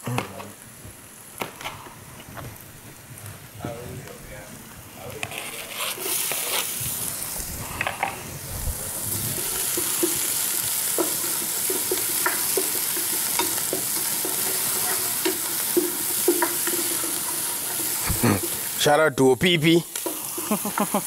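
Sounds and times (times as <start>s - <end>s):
oil sizzling in a wok: 0.0s - 21.0s
wooden spoon scraping pan: 5.2s - 6.9s, 10.9s - 18.7s.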